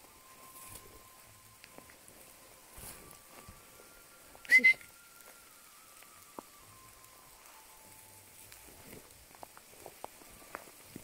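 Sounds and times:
faint ticks and rustles: 0.0 - 11.0
person whistling sharply: 4.4 - 5.1.

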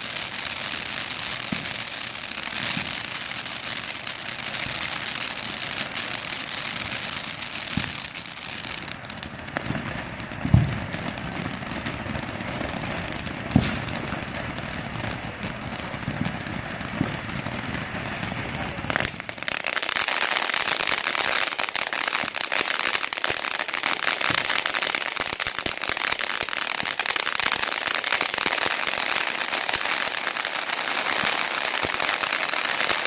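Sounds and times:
firework fountain hissing and crackling: 0.0 - 33.0
sharp firework pops: 1.3 - 1.9, 2.6 - 3.0, 7.0 - 20.3.

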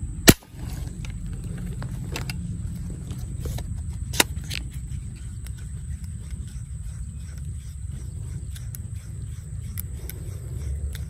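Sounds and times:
low rumble: 0.0 - 11.0
air rifle firing: 0.2 - 0.9.

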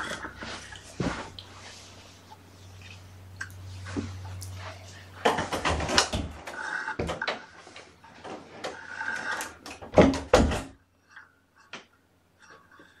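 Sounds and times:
knocks and clatters: 5.2 - 10.8.

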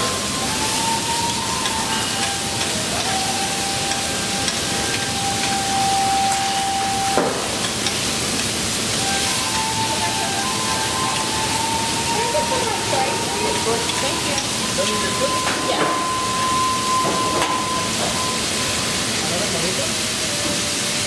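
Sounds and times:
food sizzling on a griddle: 0.0 - 21.0.

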